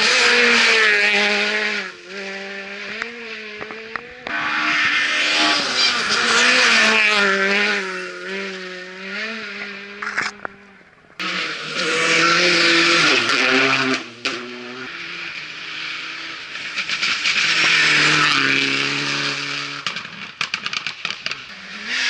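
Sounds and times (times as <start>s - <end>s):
rally car engines revving past: 0.0s - 20.4s, 21.2s - 22.0s.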